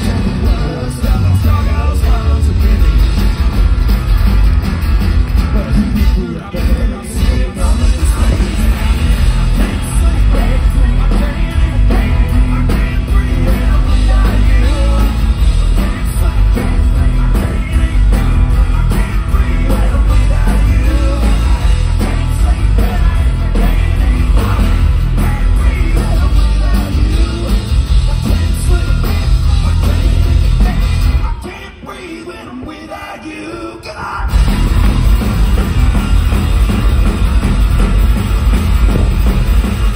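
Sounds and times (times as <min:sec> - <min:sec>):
live rock band playing: 0:00.0 - 0:32.9, 0:34.2 - 0:39.9
person singing: 0:05.5 - 0:34.5.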